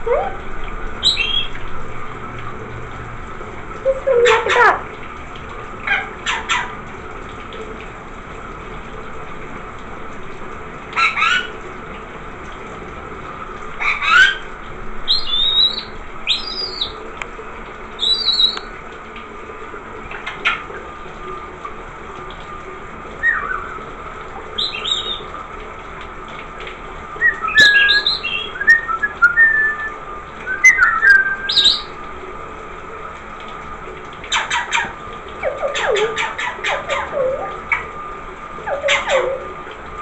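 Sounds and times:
parrot chirps and whistles: 0.0s - 0.4s, 15.1s - 17.0s, 23.2s - 23.8s, 27.2s - 29.9s, 30.5s - 31.9s, 38.6s - 39.5s
running shower hiss: 0.0s - 40.0s.

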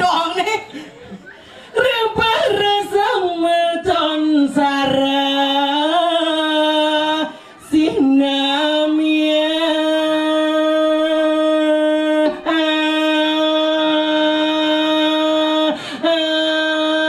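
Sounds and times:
woman singing unaccompanied: 1.8s - 17.0s.

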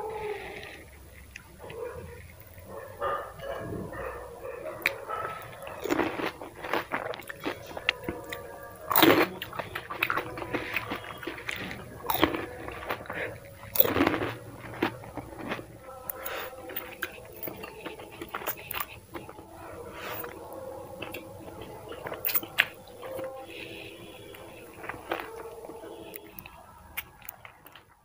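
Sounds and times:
person chewing: 0.0s - 28.0s
crunching crisp shells: 0.1s - 28.0s.

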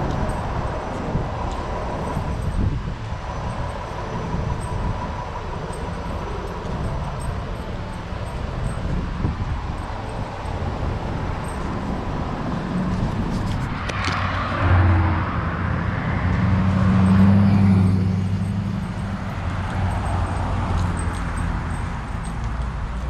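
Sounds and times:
steady outdoor rumble: 0.0s - 23.0s
vehicle engine hum: 0.0s - 23.0s.

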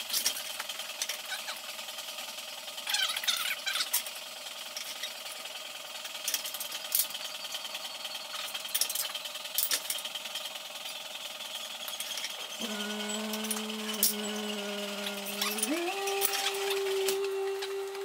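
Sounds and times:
steady mechanical drone: 0.0s - 18.0s
metal tools clinking on steel: 6.0s - 11.0s, 11.8s - 17.8s
low steady hum: 12.4s - 18.0s.

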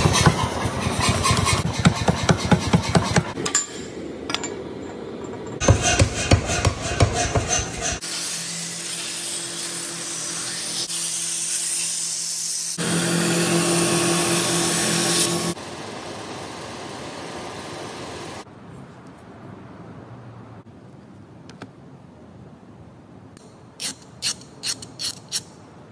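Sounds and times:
steel blade clicks and scraping: 23.4s - 25.6s.

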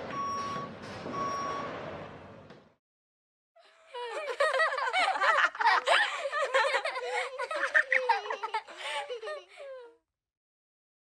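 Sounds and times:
children laughing and chattering: 3.7s - 10.0s.

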